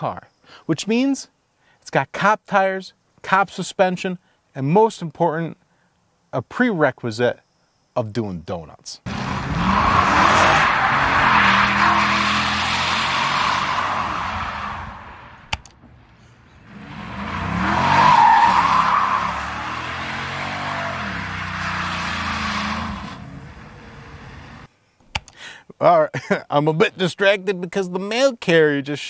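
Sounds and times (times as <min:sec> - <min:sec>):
tyres squealing: 0:09.1 - 0:15.0, 0:16.7 - 0:24.7
car engine revving hard: 0:09.1 - 0:15.4, 0:16.6 - 0:24.7.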